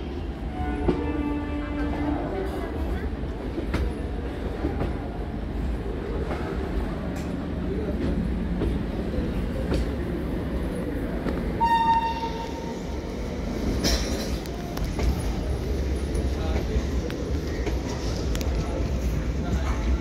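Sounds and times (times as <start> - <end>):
train rumbling along tracks: 0.0 - 20.0
train horn blast: 0.5 - 2.3, 11.6 - 12.7.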